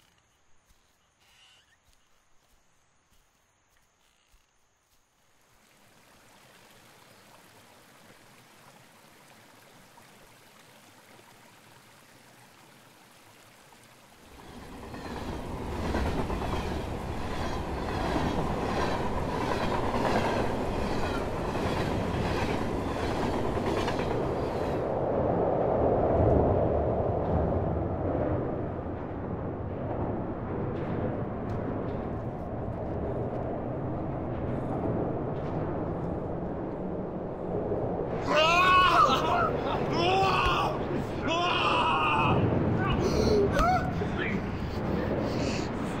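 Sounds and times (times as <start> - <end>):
faint outdoor hiss: 0.0 - 21.5
wheels clacking over rail joints: 14.3 - 24.8
train rumbling: 14.3 - 46.0.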